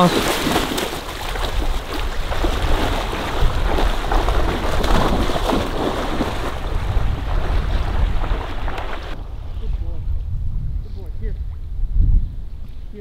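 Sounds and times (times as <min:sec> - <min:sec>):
dog splashing in water: 0:00.0 - 0:09.2
wind rumbling on microphone: 0:00.0 - 0:13.0.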